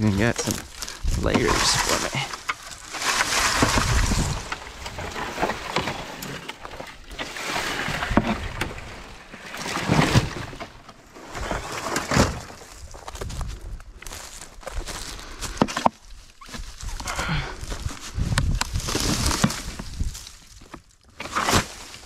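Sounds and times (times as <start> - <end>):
footsteps through dry vegetation: 0.0 - 6.8, 12.4 - 21.0
dry brush rustling and crunching: 0.0 - 22.0
metal roofing sheets scraping: 0.2 - 10.6.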